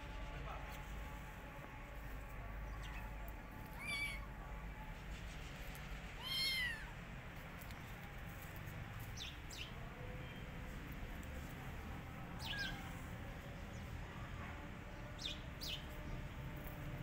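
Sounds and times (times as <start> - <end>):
kitten meowing: 3.8 - 4.3, 6.2 - 6.9.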